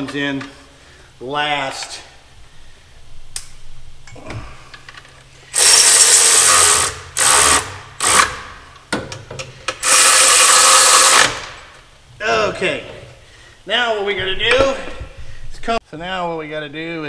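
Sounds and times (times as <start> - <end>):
power tool driving bolts: 4.8 - 11.8.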